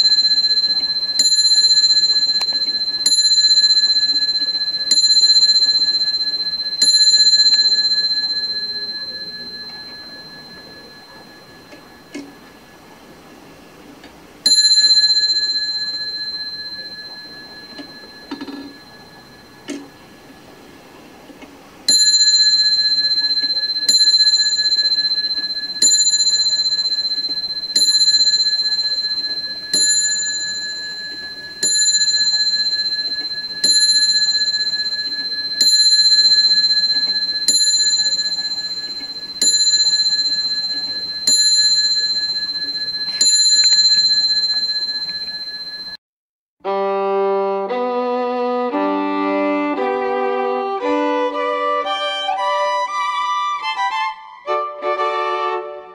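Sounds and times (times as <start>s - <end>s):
wall clock bell striking: 0.0s - 13.2s, 14.4s - 20.6s, 21.8s - 46.0s.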